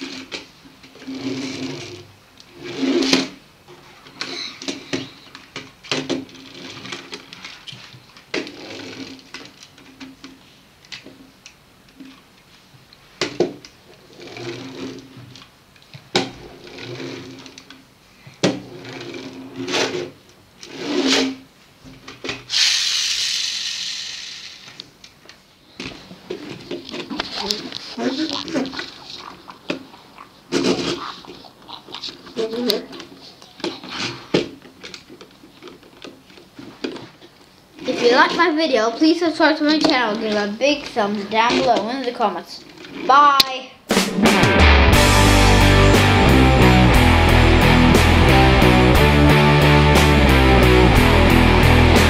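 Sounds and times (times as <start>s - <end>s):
toy spring motor whirring: 22.5s - 24.8s.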